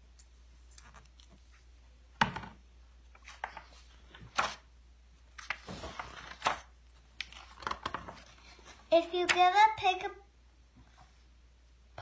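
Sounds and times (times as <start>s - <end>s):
paper pages rustling: 3.2s - 4.7s, 5.3s - 9.4s.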